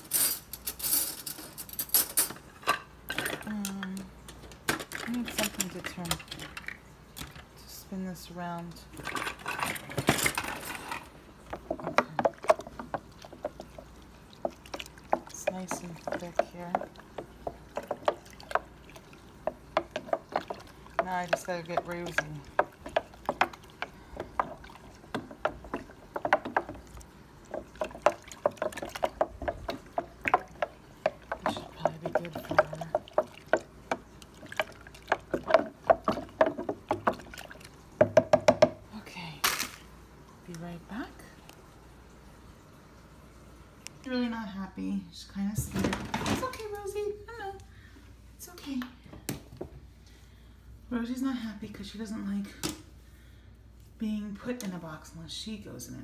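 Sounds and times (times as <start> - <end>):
utensil knocking on plastic jar: 19.4 - 26.9, 27.5 - 37.2, 38.0 - 38.8.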